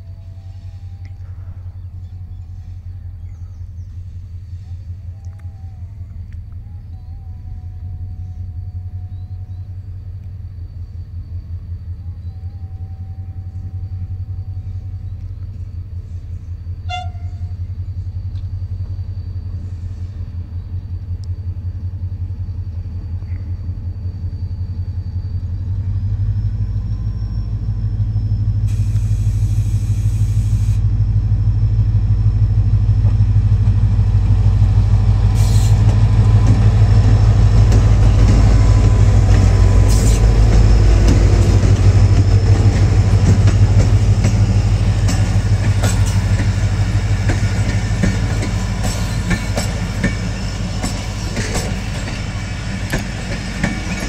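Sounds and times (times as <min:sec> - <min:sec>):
diesel locomotive engine throbbing: 0:00.0 - 0:54.0
short hiss: 0:28.7 - 0:30.8.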